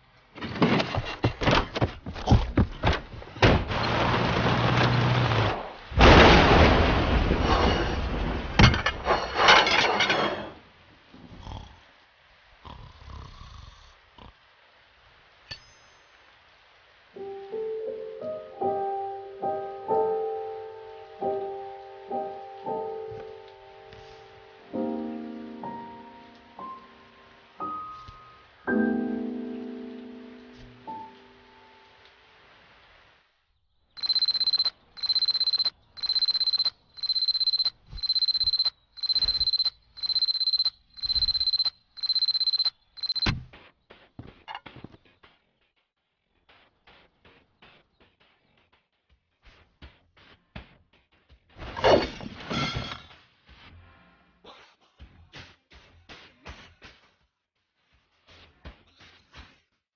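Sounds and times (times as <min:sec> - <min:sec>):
gentle piano melody: 0:17.2 - 0:32.0
alarm clock beeping: 0:34.0 - 0:43.3.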